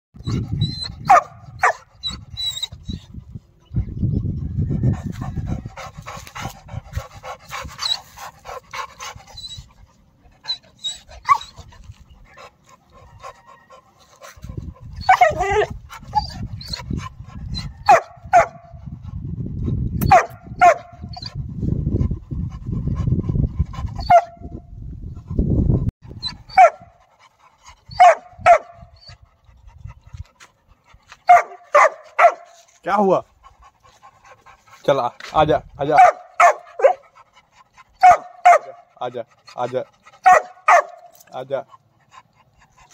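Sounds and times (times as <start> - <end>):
puppies barking: 20.1 - 21.0, 27.9 - 28.8, 31.3 - 32.5, 35.9 - 37.1, 38.0 - 38.9, 40.2 - 41.1.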